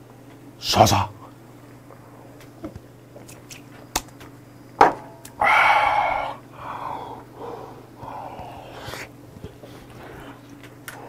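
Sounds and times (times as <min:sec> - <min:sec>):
glass set down on wooden table: 0:04.8 - 0:05.1
breathy exhale: 0:05.4 - 0:10.4.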